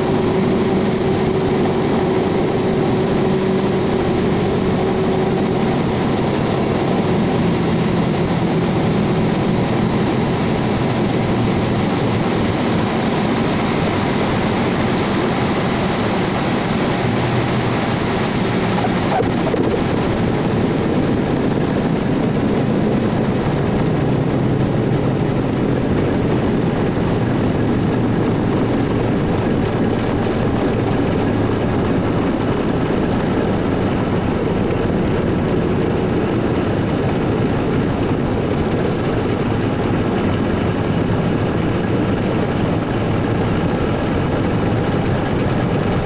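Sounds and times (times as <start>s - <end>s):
aircraft engines droning: 0.0s - 46.0s
rushing airflow: 0.0s - 46.0s
low hum: 13.8s - 46.0s.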